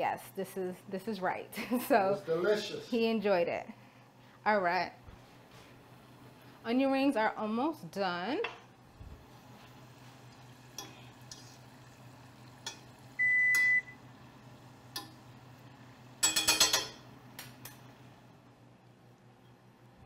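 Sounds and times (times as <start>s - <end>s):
onion rings frying: 8.8s - 18.4s.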